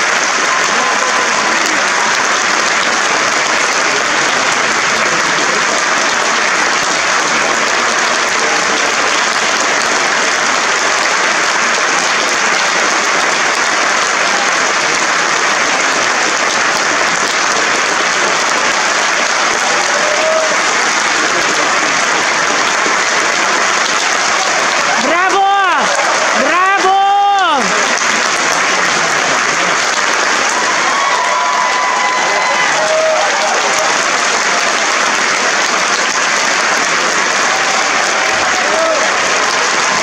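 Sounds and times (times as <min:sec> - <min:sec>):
audience applauding: 0:00.0 - 0:40.0.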